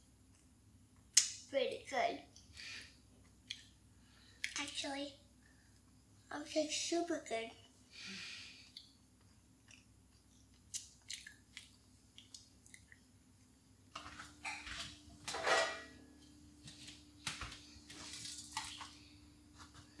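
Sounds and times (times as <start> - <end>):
child chewing cookie: 8.5 - 13.5.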